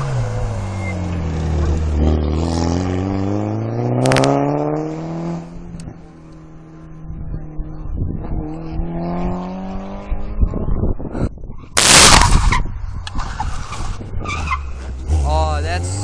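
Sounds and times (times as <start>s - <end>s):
rally car engine accelerating: 0.0s - 11.1s, 13.2s - 16.0s
sharp crack: 11.8s - 13.7s.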